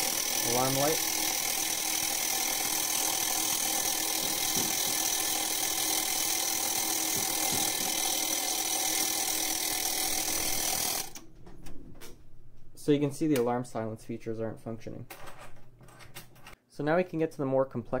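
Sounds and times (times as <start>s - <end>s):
alarm bell striker buzzing: 0.0s - 11.2s.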